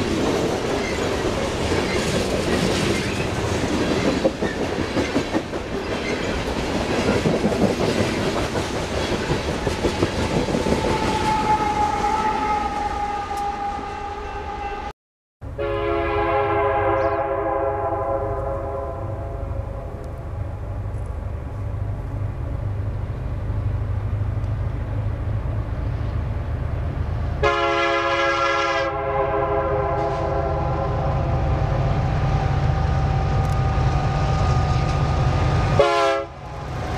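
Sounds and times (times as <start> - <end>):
train wheels on rails clattering: 0.0 - 12.2
locomotive horn chord: 10.9 - 20.1, 27.4 - 31.8, 32.8 - 36.7.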